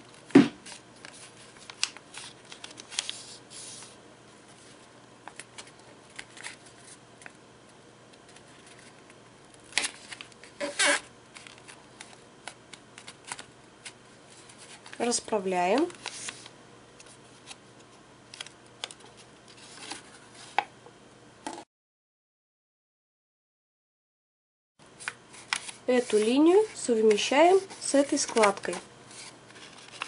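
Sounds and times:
paper rustling and crackling: 0:00.0 - 0:07.4, 0:08.2 - 0:17.6, 0:18.4 - 0:20.6, 0:25.0 - 0:30.0.

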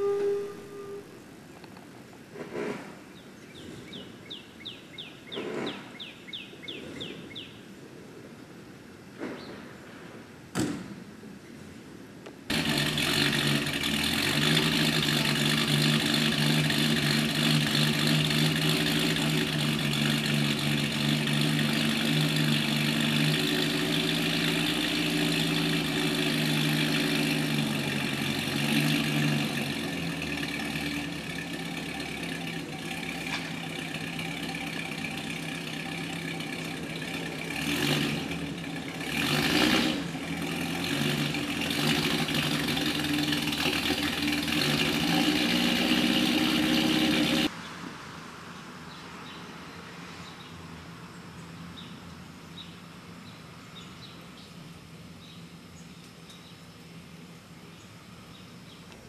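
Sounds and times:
car engine idling: 0:12.5 - 0:47.5.

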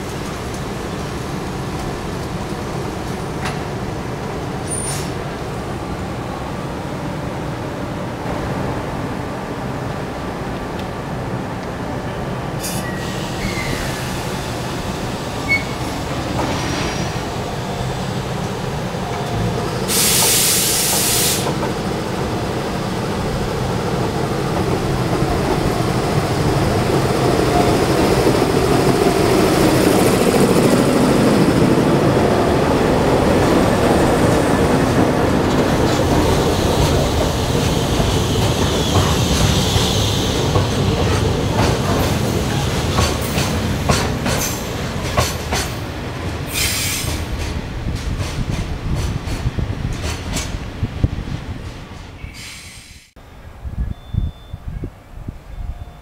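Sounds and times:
train wheels rolling on rails: 0:00.0 - 0:06.9, 0:08.1 - 0:53.2
rail-joint clicks: 0:03.0 - 0:03.7, 0:35.4 - 0:50.6
wheel squeal: 0:12.8 - 0:14.0
air hiss: 0:19.8 - 0:21.6, 0:46.5 - 0:47.2, 0:52.3 - 0:53.2.

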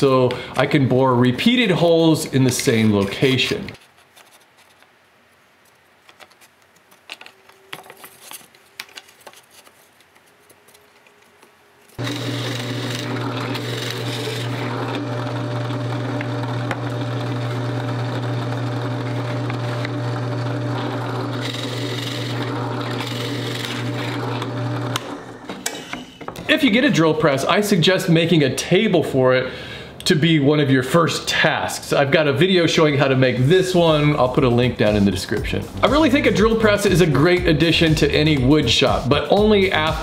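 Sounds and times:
drill bit boring into board: 0:12.0 - 0:26.1
drill press motor humming: 0:12.0 - 0:26.4.

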